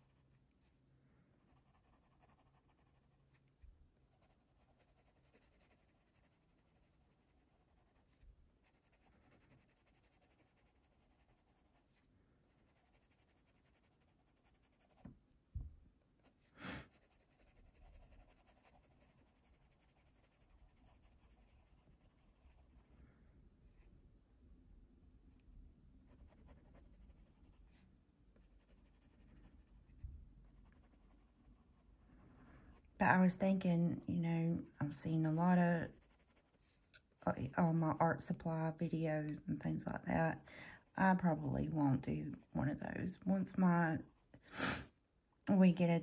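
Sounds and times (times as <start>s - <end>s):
pencil scratching on paper: 0.0s - 0.8s, 1.4s - 15.1s, 16.2s - 23.0s, 26.1s - 27.8s, 28.4s - 37.3s, 42.3s - 44.3s.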